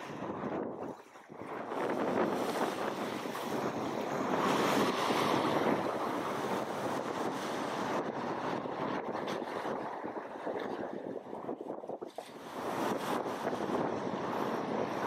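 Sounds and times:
waves breaking: 0.0 - 15.0
wind buffeting microphone: 0.0 - 15.0.

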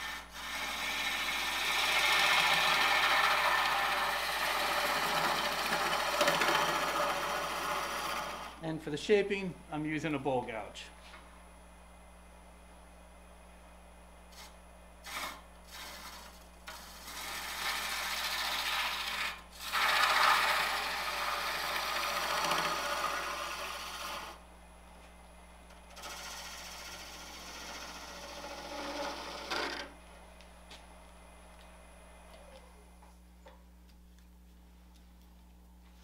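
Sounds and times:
bowl gouge cutting wood on lathe: 0.0 - 8.6, 14.4 - 24.4, 25.9 - 29.9.

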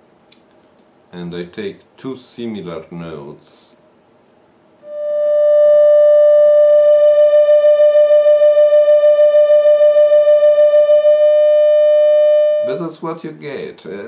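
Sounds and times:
pulsing synthesised tone: 4.8 - 12.7.

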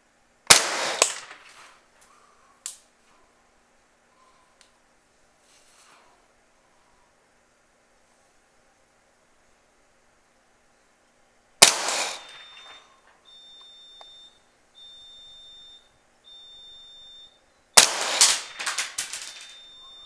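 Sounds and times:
rifle shots: 0.5 - 1.4, 11.6 - 12.5, 17.8 - 19.2
high electronic beeps: 12.2 - 17.4, 19.6 - 20.0.

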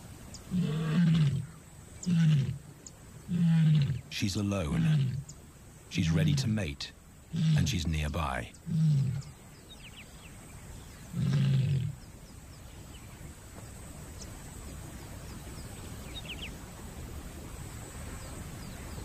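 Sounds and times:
lioness low roar-like call: 0.5 - 2.6, 3.3 - 4.1, 4.7 - 5.3, 7.3 - 7.8, 8.6 - 9.4, 11.1 - 12.0.

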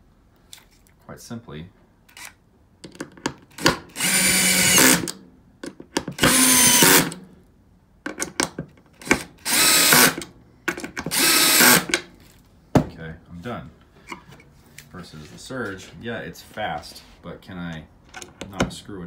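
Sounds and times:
cordless screwdriver driving screws: 3.6 - 5.2, 6.2 - 7.2, 9.0 - 10.3, 11.0 - 12.0.

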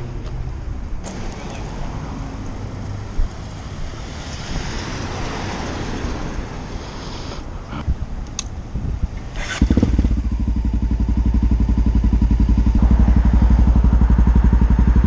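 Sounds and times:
street traffic: 0.0 - 15.0
vehicle passing: 1.0 - 7.8, 11.6 - 15.0
wind on microphone: 3.1 - 10.8, 12.4 - 15.0.

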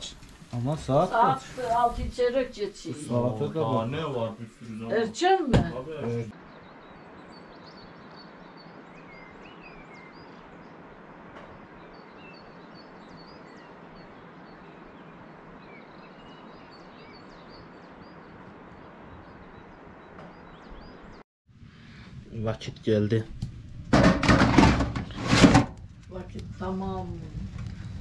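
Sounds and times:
small birds chirping: 0.0 - 21.2.

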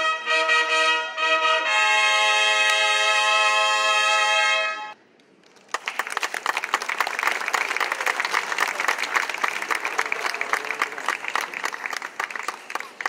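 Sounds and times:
crowd applauding: 5.4 - 13.0.

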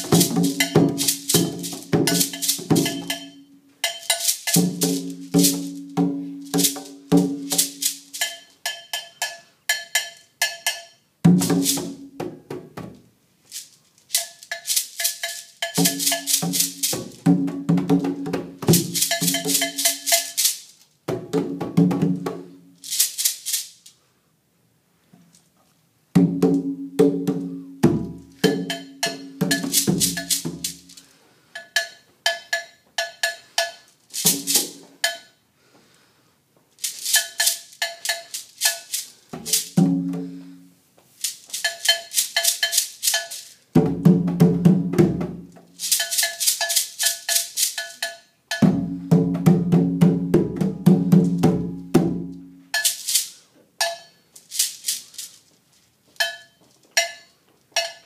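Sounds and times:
hand drums: 0.0 - 13.0, 15.2 - 20.5, 21.1 - 22.7, 26.2 - 30.9, 39.3 - 40.5, 43.8 - 45.7, 48.5 - 52.9
shaker: 0.0 - 24.1, 27.2 - 36.0, 36.7 - 58.0.

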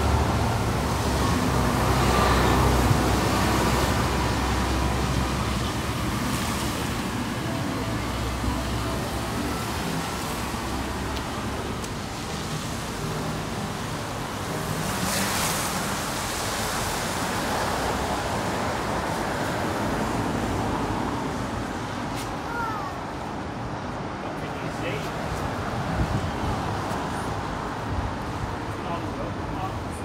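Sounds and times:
road traffic rush: 0.0 - 30.0
wind: 0.0 - 30.0.

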